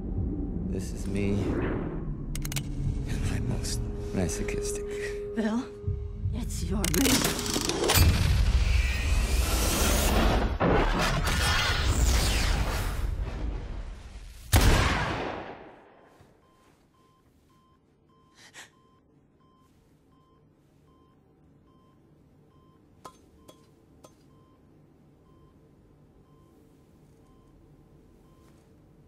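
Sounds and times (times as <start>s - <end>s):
faint regular beeping: 16.4s - 29.0s.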